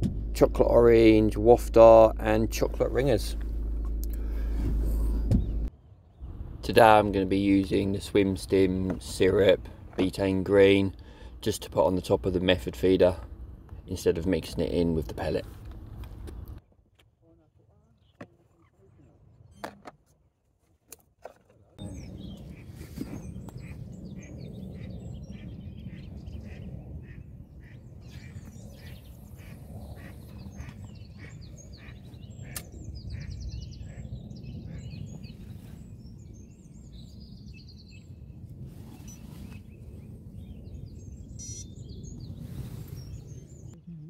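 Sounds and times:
steady low rumble: 0:00.0 - 0:16.6, 0:21.8 - 0:44.0
small birds chirping: 0:21.8 - 0:44.0
ducks quacking: 0:23.6 - 0:34.1.

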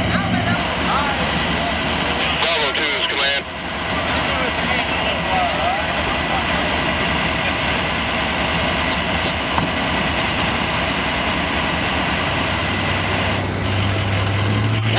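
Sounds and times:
vehicle engine idling: 0:00.0 - 0:14.9.

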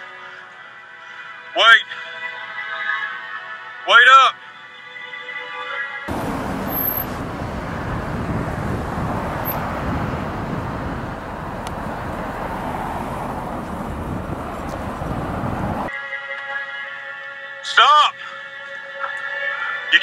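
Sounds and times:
traffic noise with low rumble: 0:06.1 - 0:15.9.

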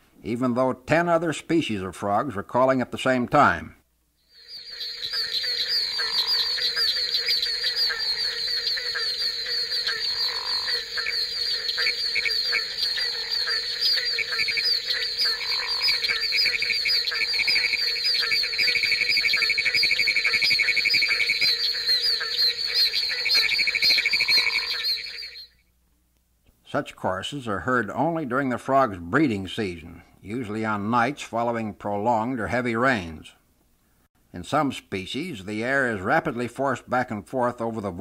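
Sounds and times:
chorus of frogs calling: 0:04.2 - 0:25.6
pulsing frog trill: 0:04.2 - 0:25.6.

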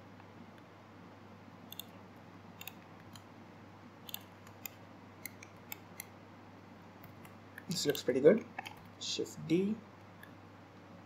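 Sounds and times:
low steady hum: 0:00.0 - 0:11.0
computer mouse clicks: 0:01.7 - 0:01.9, 0:02.6 - 0:03.3, 0:04.1 - 0:06.1.

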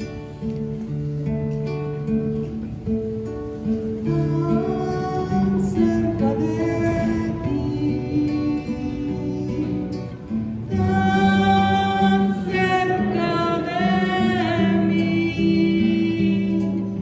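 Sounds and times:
acoustic guitar: 0:00.0 - 0:17.0
person singing a hymn: 0:03.5 - 0:17.0.

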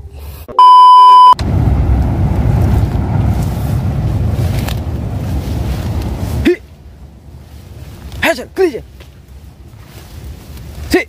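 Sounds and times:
test-tone beep: 0:00.6 - 0:01.4
wind buffeting microphone: 0:01.4 - 0:10.9.

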